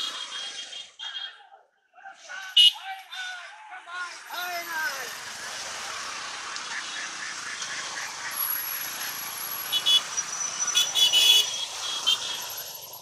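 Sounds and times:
loud horn beeps: 0.0 - 1.4, 2.6 - 3.3, 9.6 - 12.7
motorcycles riding past: 4.1 - 13.0.

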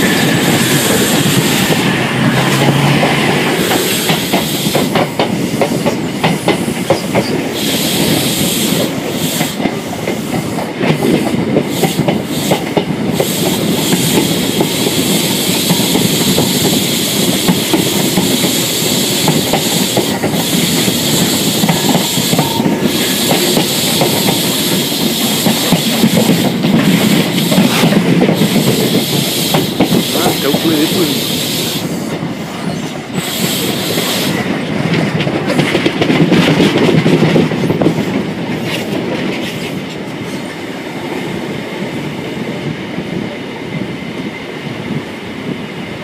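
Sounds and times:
train wheels rumbling on track: 0.0 - 46.0
hiss: 7.5 - 32.2, 33.2 - 34.4.

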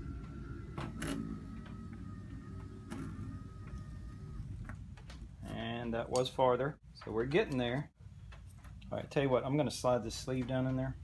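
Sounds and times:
antenna motor whining: 0.0 - 5.6.

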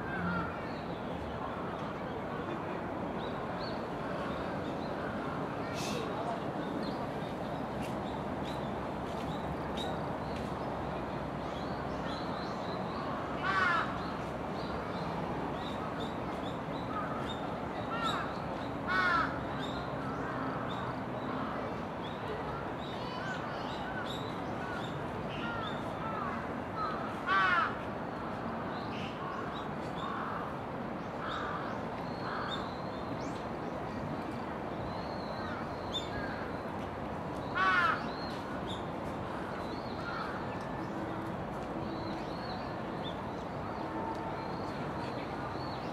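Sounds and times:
steady background noise: 0.0 - 45.9
crow cawing: 37.6 - 38.0.

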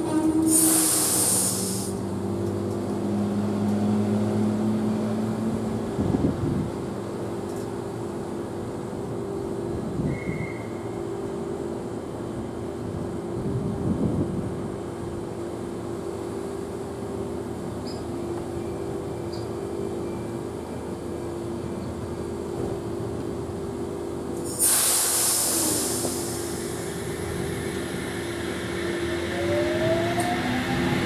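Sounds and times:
compressed air brake hiss: 0.3 - 2.0, 24.4 - 29.0
electric train humming: 14.6 - 31.0
rising electric whine: 27.4 - 31.0.

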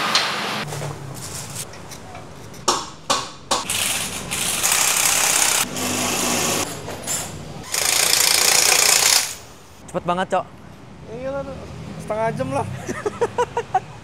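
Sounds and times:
pneumatic impact wrench rattling: 3.6 - 9.5.

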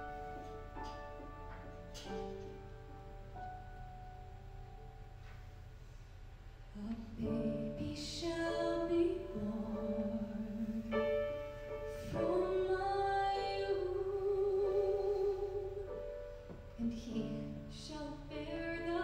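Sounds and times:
piano accompaniment: 0.0 - 19.0
woman singing: 6.7 - 11.2, 11.9 - 16.1, 16.7 - 19.0.

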